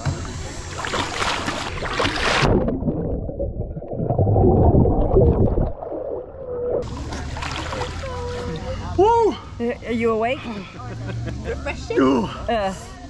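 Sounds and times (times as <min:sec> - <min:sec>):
water splashing: 0:00.0 - 0:09.6
underwater bubbling: 0:00.3 - 0:08.9.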